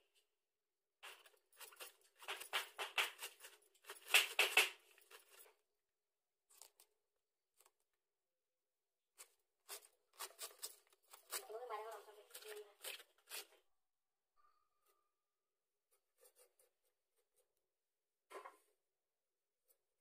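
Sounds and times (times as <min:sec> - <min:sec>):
blade shredding cabbage: 0:01.0 - 0:05.5, 0:09.1 - 0:13.6.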